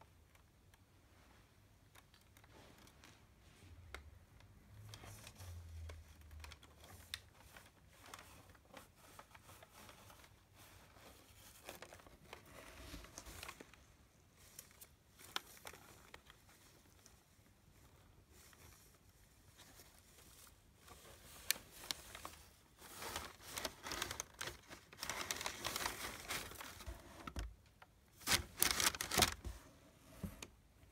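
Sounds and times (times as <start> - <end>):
packing paper crinkling: 5.2 - 29.6.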